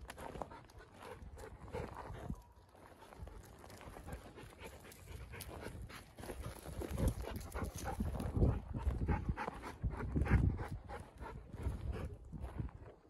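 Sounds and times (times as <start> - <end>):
dog panting: 0.1 - 12.7.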